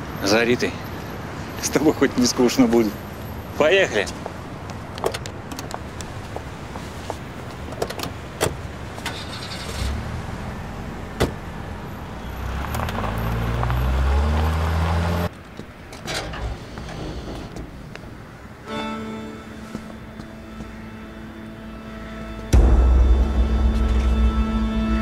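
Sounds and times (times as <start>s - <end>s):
car engine revving: 9.4s - 15.3s.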